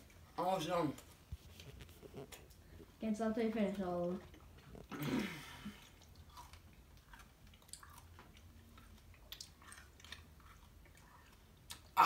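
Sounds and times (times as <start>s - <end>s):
wet mouth clicks chewing candy: 5.8s - 12.0s.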